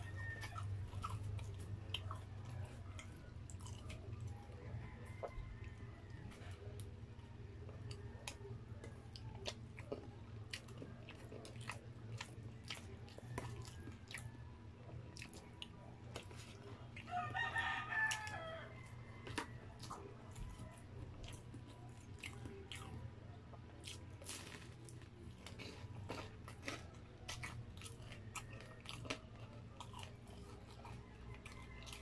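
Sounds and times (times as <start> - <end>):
rooster crowing: 0.0 - 1.1, 4.4 - 6.6, 17.1 - 20.8, 31.0 - 32.0
chewing and mouth clicks: 0.0 - 32.0.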